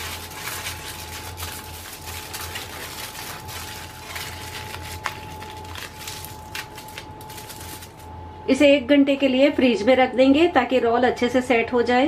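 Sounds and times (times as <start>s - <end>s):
aluminium foil crinkling: 0.0s - 8.1s
faint steady hum: 0.0s - 12.0s.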